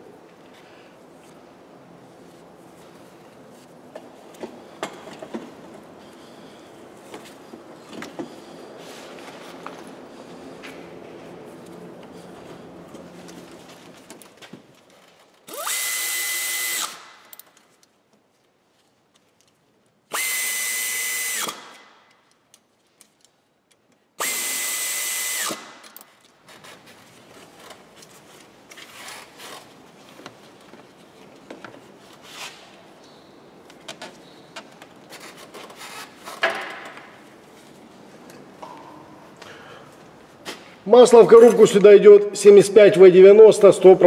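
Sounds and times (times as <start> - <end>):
tool handling clicks: 16.8 - 18.0, 25.5 - 26.4.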